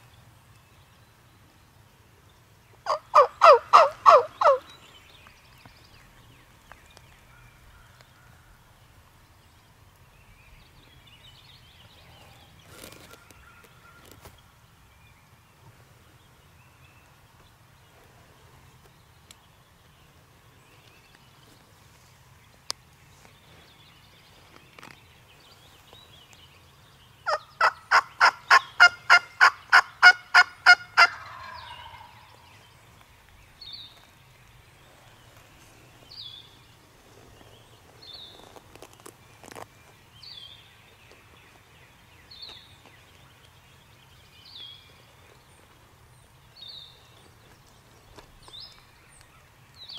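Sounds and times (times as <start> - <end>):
turkey calling: 2.9 - 4.6, 27.3 - 32.4.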